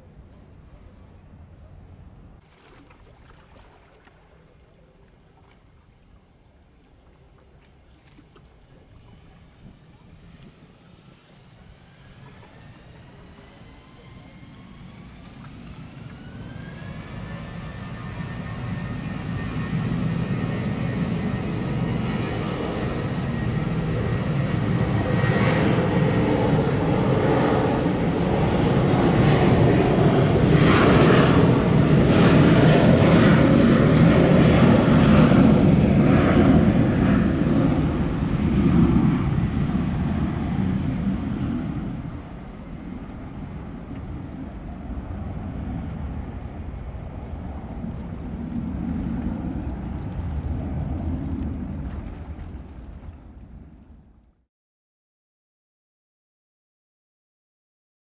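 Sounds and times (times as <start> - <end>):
jet engines spooling up: 9.2 - 53.2.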